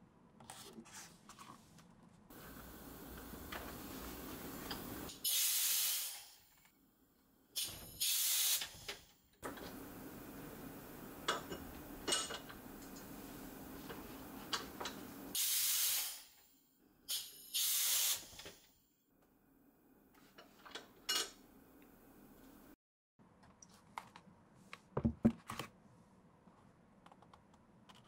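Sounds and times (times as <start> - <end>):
steady hiss with low hum: 2.3 - 5.2, 9.4 - 15.4
compressed air bursts hissing: 3.8 - 6.5, 7.6 - 8.9, 15.3 - 16.4, 17.1 - 18.4.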